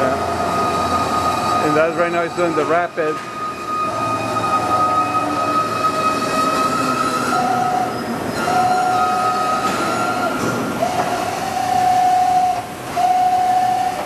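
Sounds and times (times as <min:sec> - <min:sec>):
machine axis drive whine: 0:00.0 - 0:14.0.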